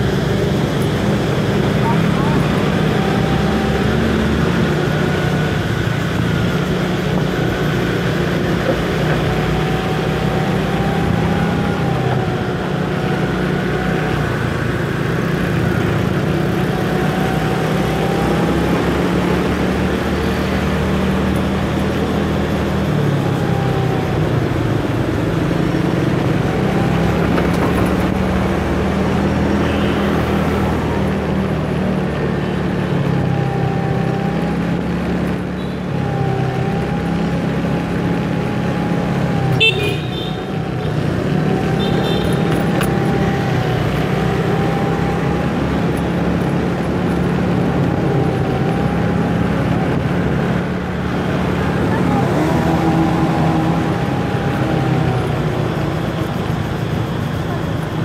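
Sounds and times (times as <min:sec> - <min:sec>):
motor scooter engine whine: 0:00.0 - 0:58.0
road noise rush: 0:00.0 - 0:58.0.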